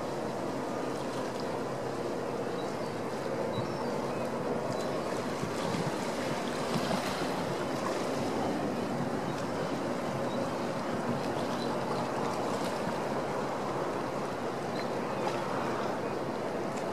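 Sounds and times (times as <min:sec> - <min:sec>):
faint ferry engine drone: 0:00.0 - 0:16.9
wind on microphone: 0:03.6 - 0:16.9.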